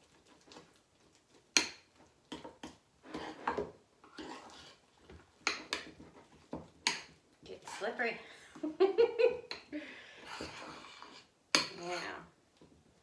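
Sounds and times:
spoon mashing potato salad: 0:00.0 - 0:07.8, 0:09.3 - 0:12.8.

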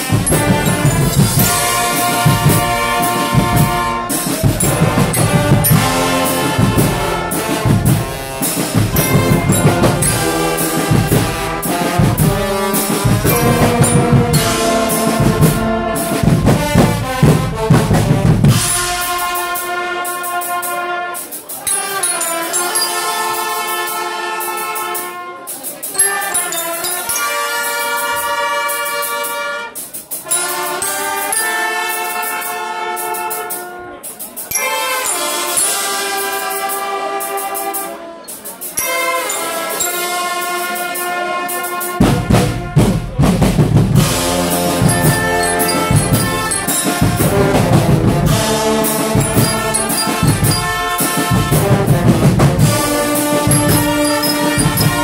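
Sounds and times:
drum kit heavy beat: 0:00.0 - 0:19.9, 0:42.0 - 0:55.0
brass band chords: 0:00.0 - 0:55.0.

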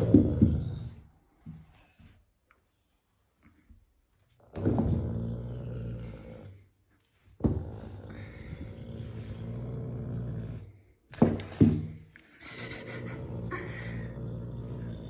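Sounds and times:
wild cat growling: 0:04.4 - 0:06.6, 0:07.5 - 0:10.8, 0:12.6 - 0:15.0.

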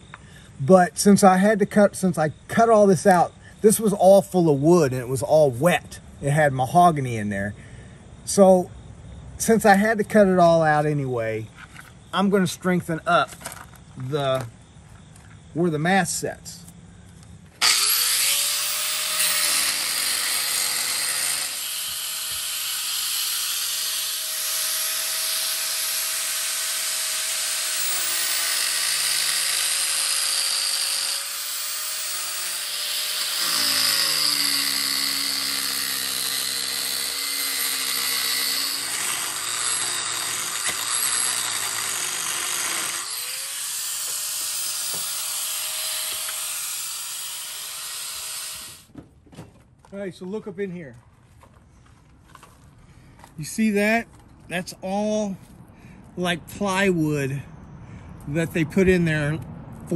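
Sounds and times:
angle grinder grinding fiberglass: 0:17.6 - 0:48.8.

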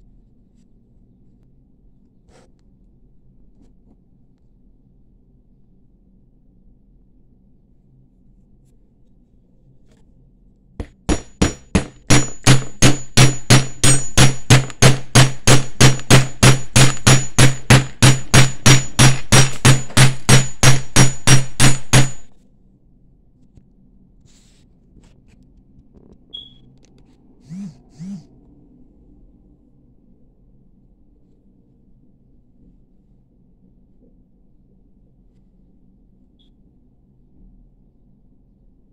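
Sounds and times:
hammer striking metal wire: 0:10.8 - 0:22.3.

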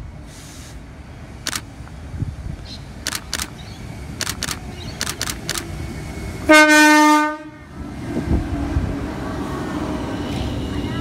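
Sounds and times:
low train rumble: 0:00.0 - 0:11.0
sharp clicks: 0:01.4 - 0:01.7, 0:03.0 - 0:03.6, 0:04.2 - 0:05.7
electric train horn: 0:06.4 - 0:07.7.

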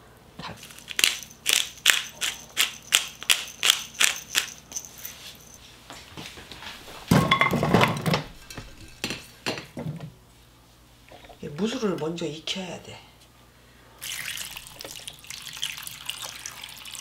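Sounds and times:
pepper grinder crunching: 0:00.6 - 0:05.5.

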